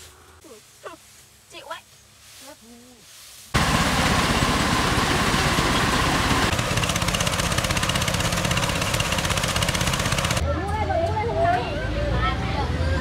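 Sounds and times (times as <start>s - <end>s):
small engine running: 3.6s - 10.4s.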